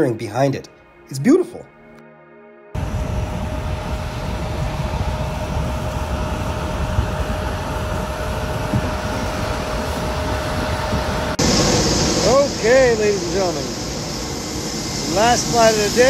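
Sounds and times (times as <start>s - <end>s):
jet engine roar: 2.8s - 16.0s.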